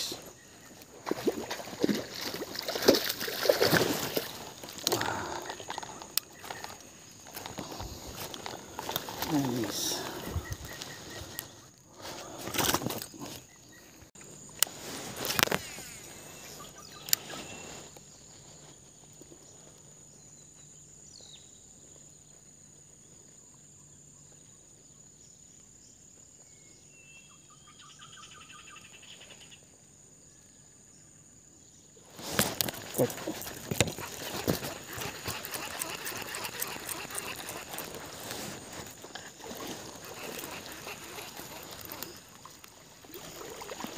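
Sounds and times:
handling knocks and rustles: 0:32.2 - 0:35.8
high-pitched insect drone: 0:32.9 - 0:42.5
trilled bird call: 0:33.0 - 0:42.6.

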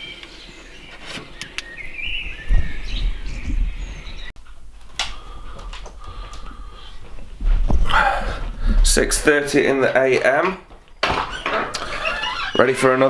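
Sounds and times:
small birds chirping: 0:00.0 - 0:04.4, 0:05.2 - 0:07.3.

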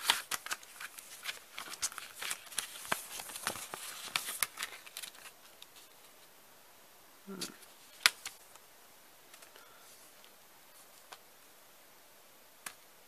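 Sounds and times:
plastic sleeve crinkling: 0:00.0 - 0:06.0.

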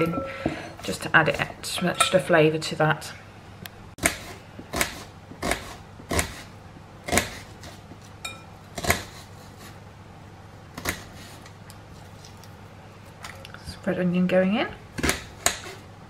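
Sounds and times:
knife slicing onion: 0:04.0 - 0:09.9, 0:10.7 - 0:11.5.

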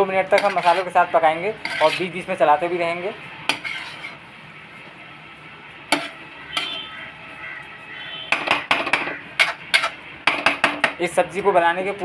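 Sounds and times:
metal spoon scraping pan: 0:00.2 - 0:02.4, 0:03.4 - 0:04.2, 0:05.9 - 0:07.0, 0:08.3 - 0:11.0.

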